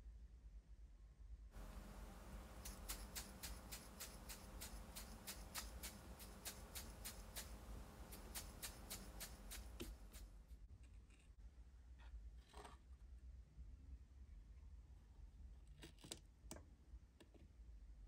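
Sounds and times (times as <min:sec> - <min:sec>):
salt shaker ticking: 0:01.6 - 0:10.3.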